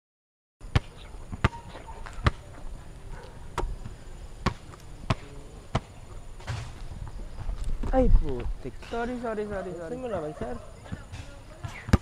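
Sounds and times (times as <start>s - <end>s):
basketball bouncing on concrete: 0.7s - 2.4s, 3.2s - 7.9s, 10.9s - 12.0s.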